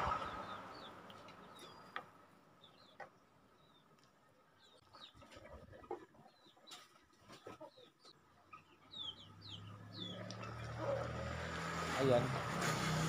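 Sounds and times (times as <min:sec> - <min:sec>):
birds peeping: 0:00.0 - 0:03.9, 0:04.6 - 0:11.0.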